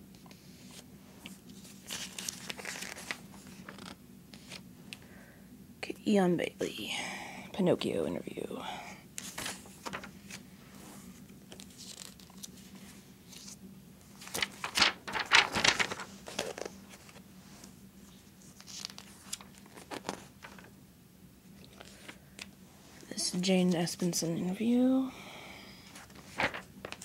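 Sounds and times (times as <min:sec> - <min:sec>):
magazine pages rustling: 0:00.6 - 0:04.6, 0:09.2 - 0:10.5, 0:11.1 - 0:20.7, 0:21.5 - 0:24.1, 0:25.9 - 0:27.0.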